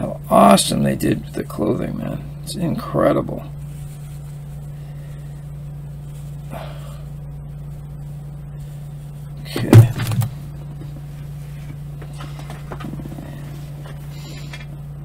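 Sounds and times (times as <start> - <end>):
steady low hum: 0.0 - 15.0
thump and knocks on cardboard box: 9.5 - 10.4.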